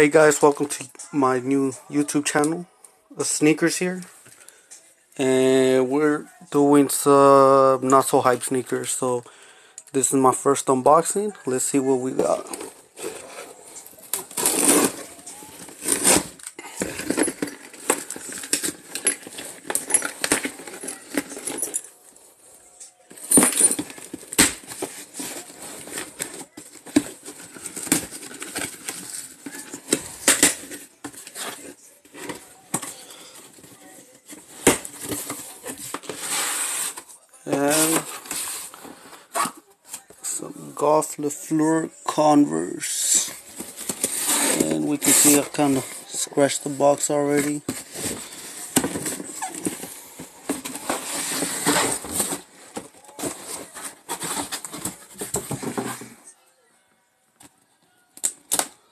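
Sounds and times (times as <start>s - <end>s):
cardboard box scraping: 14.3s - 19.4s, 47.4s - 56.2s.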